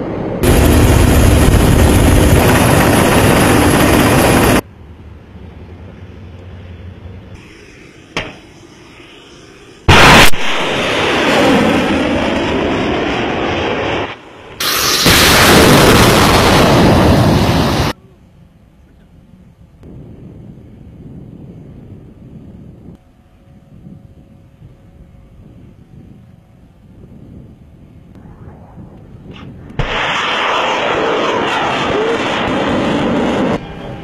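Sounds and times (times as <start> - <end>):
rushing engine and wind noise: 0.0 - 10.8, 15.8 - 34.0
sharp crack: 9.9 - 11.1, 29.0 - 32.7
loud short blast: 9.9 - 13.4, 14.6 - 18.0, 29.4 - 33.6.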